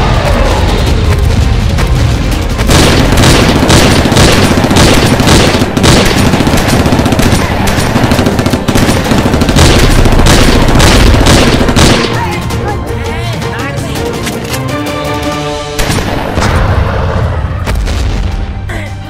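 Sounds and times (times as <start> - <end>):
deep rumble: 0.0 - 6.0
automatic gunfire: 2.7 - 12.2.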